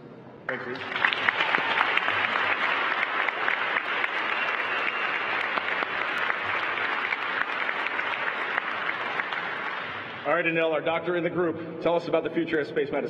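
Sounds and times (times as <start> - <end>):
crowd applauding: 0.5 - 10.6.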